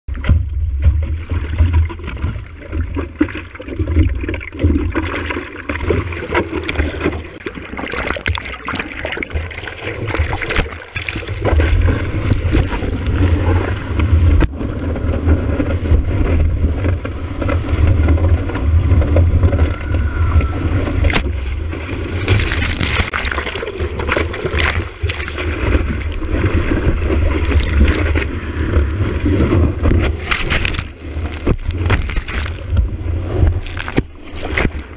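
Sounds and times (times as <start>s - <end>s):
deep rumble of water: 0.0s - 34.9s
seawater rushing and splashing: 0.8s - 34.9s.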